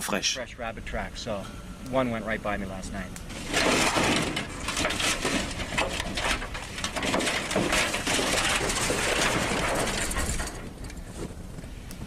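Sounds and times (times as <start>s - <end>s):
sheet metal crinkling and scraping: 3.3s - 11.7s.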